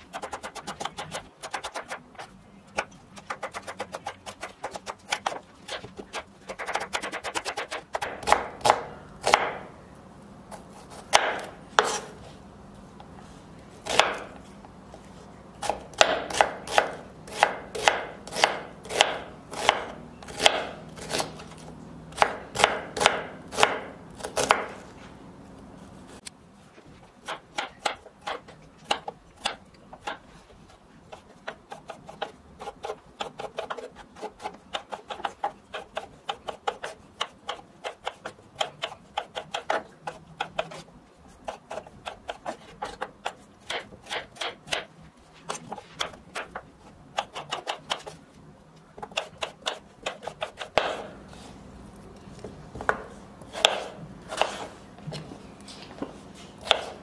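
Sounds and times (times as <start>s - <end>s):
knife slicing potato: 0.0s - 9.7s, 10.5s - 12.3s, 13.8s - 14.4s, 15.6s - 24.9s, 31.0s - 48.2s, 49.0s - 51.6s, 52.4s - 54.8s, 56.5s - 57.0s
knife chopping on wooden board: 2.8s - 9.7s, 10.8s - 12.1s, 13.8s - 14.4s, 15.6s - 24.8s, 27.2s - 30.2s, 31.1s - 44.9s, 45.5s - 48.2s, 49.0s - 51.2s, 52.7s - 55.2s, 56.6s - 57.0s.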